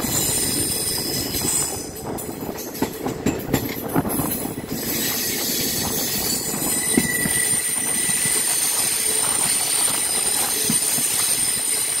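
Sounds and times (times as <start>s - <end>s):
train wheels rumbling on rail: 0.0s - 12.0s
high wheel squeal: 4.8s - 12.0s.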